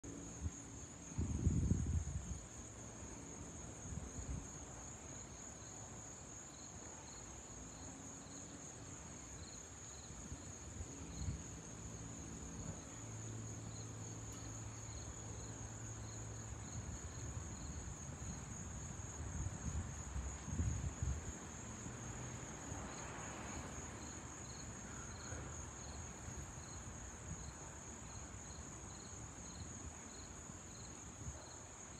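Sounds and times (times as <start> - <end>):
lower insect chirp: 0.1 - 31.9
insects trilling: 24.0 - 26.0.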